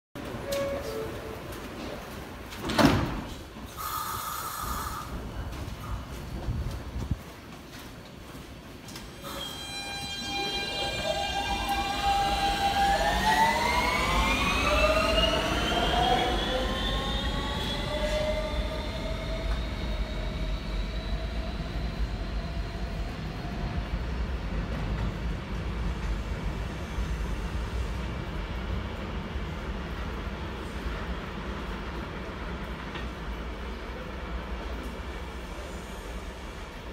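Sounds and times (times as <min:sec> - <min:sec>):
wheels rumbling on rail: 0:05.0 - 0:36.9
train motor whine rising: 0:09.4 - 0:22.5.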